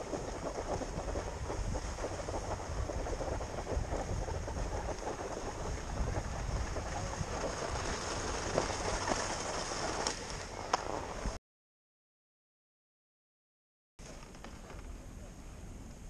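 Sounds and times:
wind rushing over microphone: 0.0s - 11.4s.

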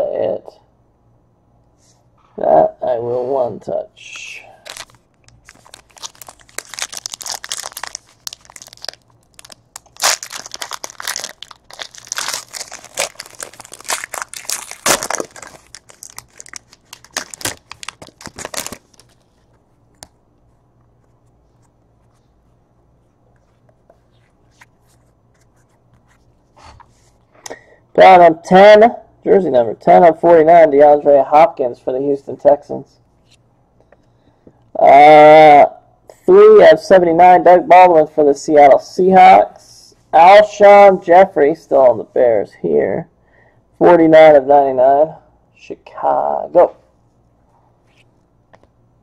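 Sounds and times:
foil wrapper crinkling and tearing: 4.6s - 19.5s.

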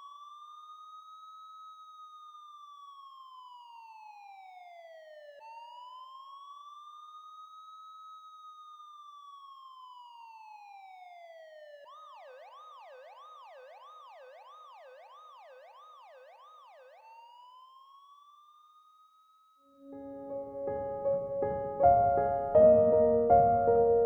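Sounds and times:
faint emergency siren wail and yelp: 9.1s - 18.4s.

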